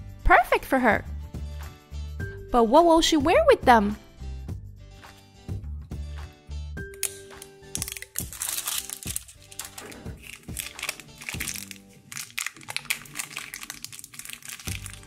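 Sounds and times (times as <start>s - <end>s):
background music: 0.0s - 15.0s
plastic wrapper crinkling: 7.0s - 15.0s.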